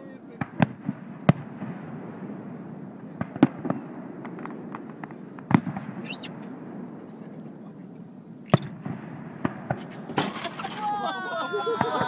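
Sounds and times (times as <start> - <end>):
fireworks bursting: 0.0 - 12.0
small firework pops: 3.1 - 6.5, 8.4 - 10.3.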